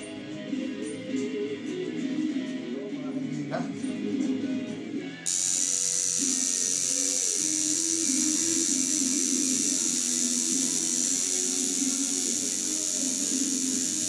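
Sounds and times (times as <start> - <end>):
music playing: 0.0 - 14.0
tattoo machine buzzing: 5.3 - 14.0.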